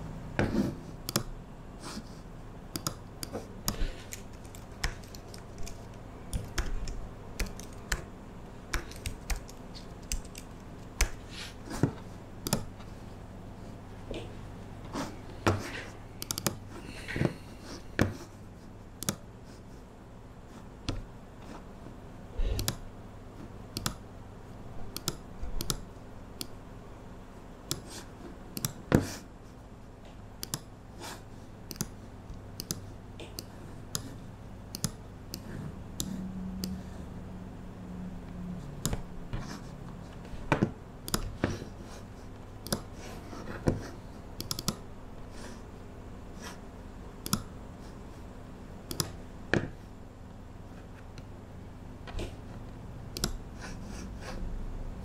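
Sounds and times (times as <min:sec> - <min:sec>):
steady low hum: 0:00.0 - 0:55.0
computer keyboard typing: 0:02.7 - 0:08.1, 0:08.7 - 0:11.3, 0:12.4 - 0:12.7, 0:16.2 - 0:16.6, 0:22.4 - 0:22.8, 0:24.9 - 0:26.6, 0:31.7 - 0:32.0, 0:34.7 - 0:36.8, 0:41.0 - 0:41.4, 0:44.4 - 0:44.8, 0:48.9 - 0:49.2, 0:53.1 - 0:53.4.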